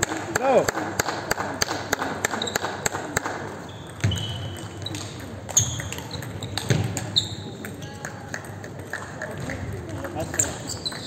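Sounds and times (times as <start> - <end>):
table tennis ball bouncing: 0.0 - 11.0
shoes squeaking on floor: 3.6 - 8.0, 10.2 - 11.0.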